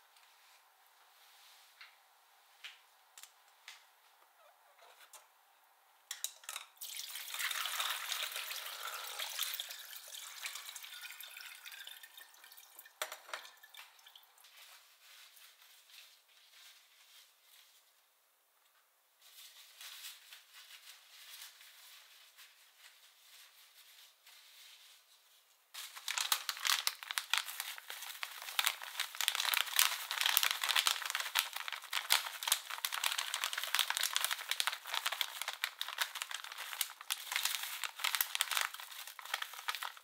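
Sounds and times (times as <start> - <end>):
water pouring into a steel sink: 6.8 - 14.2
light drips and ticks: 9.8 - 14.6
cloth rustling: 14.5 - 18.0, 19.2 - 40.0.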